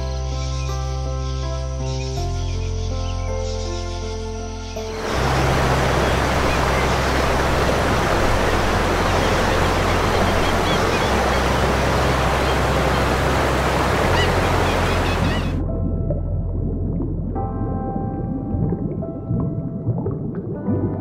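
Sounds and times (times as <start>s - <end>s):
low held bass notes: 4.8s - 21.0s
steady rushing noise: 5.0s - 15.6s.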